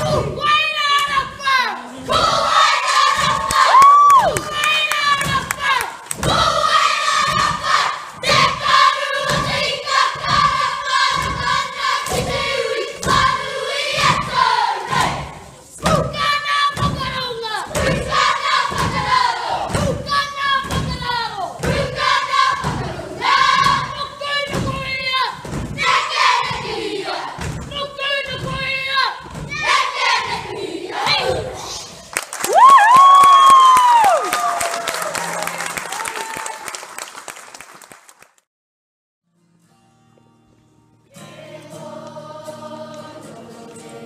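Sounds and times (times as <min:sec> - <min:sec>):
children chanting and shouting: 0:00.0 - 0:32.1.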